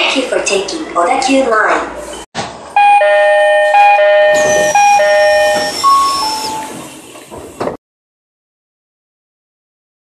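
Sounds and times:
train door two-tone chime: 2.8 - 7.0
air hiss from train doors: 4.4 - 7.8.

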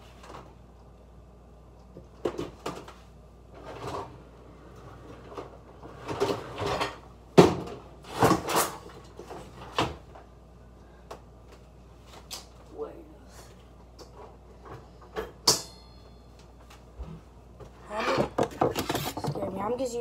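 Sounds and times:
knocks and clunks in kitchen: 1.9 - 3.0, 3.6 - 10.3, 16.9 - 19.7.

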